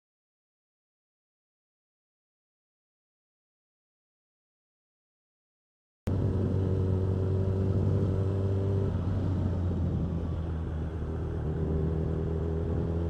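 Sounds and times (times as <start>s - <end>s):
motorcycle engine running: 6.1s - 13.0s.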